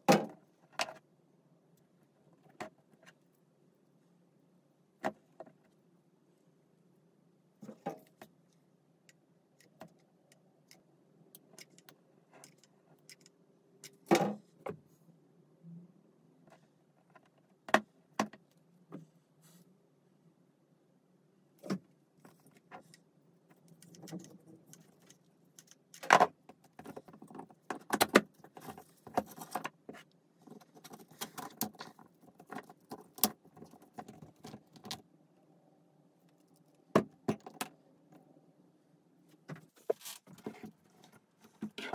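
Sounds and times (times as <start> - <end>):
faint steady hum: 0.0 - 41.9
plastic parts clicking and clattering: 21.6 - 35.0.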